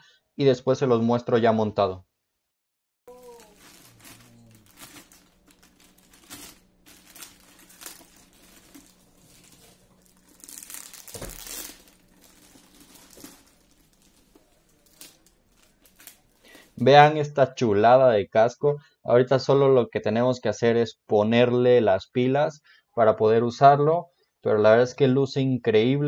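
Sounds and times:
plastic wrapping crinkling: 3.1s - 16.9s.

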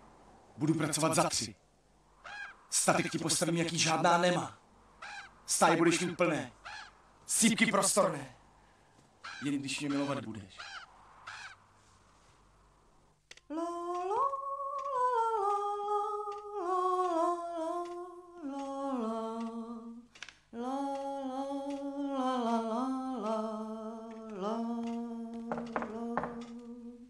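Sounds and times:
woman humming a melody: 13.5s - 27.0s.

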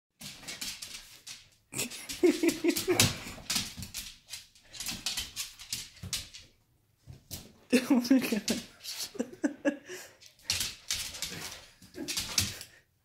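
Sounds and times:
dog claws clicking on wood floor: 0.2s - 7.5s, 10.2s - 12.8s.

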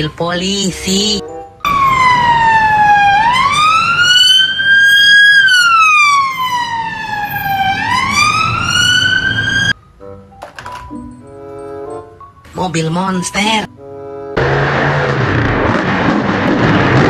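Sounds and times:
low rumble of traffic: 1.2s - 17.0s
police siren wailing: 1.6s - 9.8s.

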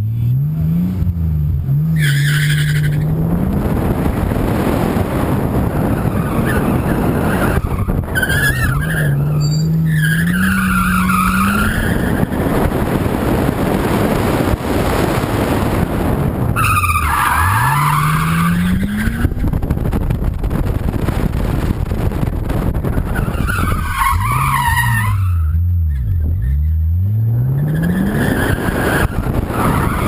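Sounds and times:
tyres squealing: 6.0s - 12.4s.

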